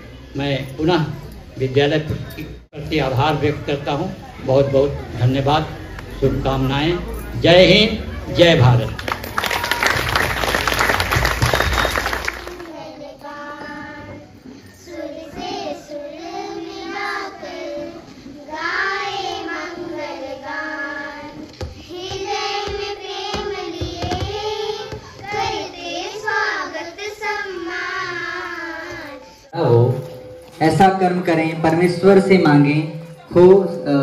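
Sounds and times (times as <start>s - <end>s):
child singing: 12.5s - 29.4s.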